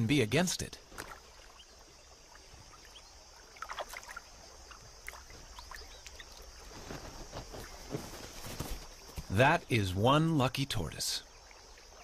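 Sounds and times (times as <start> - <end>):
water drips and plinks: 0.0 - 6.6
elephant sloshing water: 0.8 - 6.8.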